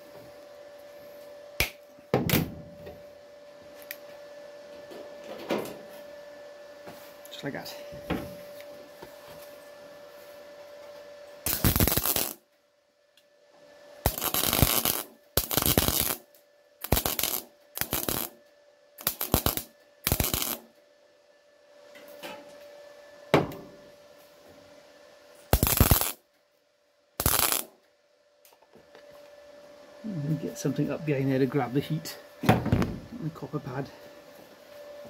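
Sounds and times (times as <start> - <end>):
faint steady hum: 0.0 - 35.0
mig welder tack welds: 11.4 - 12.4, 14.0 - 18.4, 19.0 - 20.7, 25.5 - 26.2, 27.2 - 27.7.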